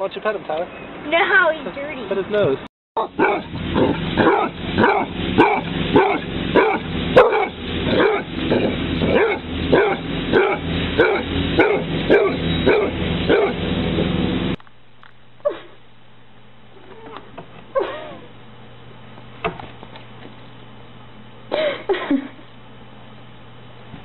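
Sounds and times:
dog barking: 3.0s - 13.6s.

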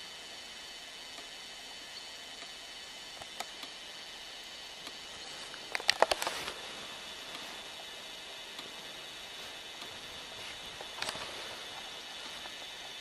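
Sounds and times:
camcorder tape hiss: 0.0s - 13.0s
faint ticks: 1.1s - 3.8s, 4.7s - 13.0s
sharp clicks: 4.8s - 6.6s, 7.3s - 13.0s.

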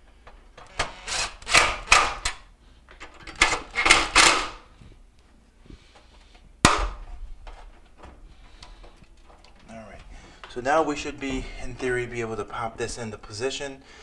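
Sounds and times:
cordless driver driving screws: 0.7s - 2.3s.

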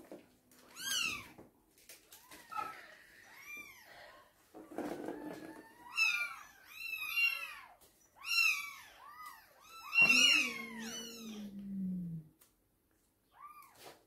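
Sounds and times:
cats chirping meows: 0.6s - 1.4s, 2.0s - 4.3s, 4.9s - 12.2s, 13.3s - 13.9s.

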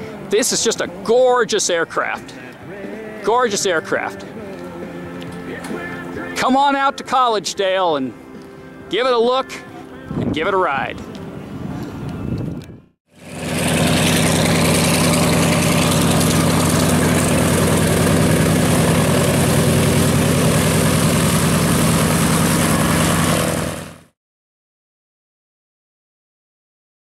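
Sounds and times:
piston aircraft engines idling: 13.2s - 24.0s.

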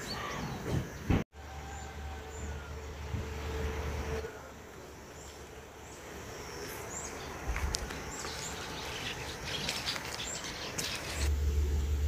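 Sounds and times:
outdoor background noise: 0.0s - 12.0s
small birds chirping: 4.8s - 11.3s.

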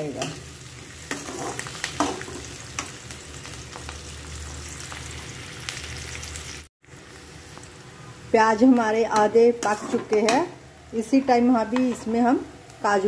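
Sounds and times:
onions sizzling in oil: 0.0s - 13.0s
metal spoon scraping pan: 1.1s - 2.3s, 9.2s - 10.5s.

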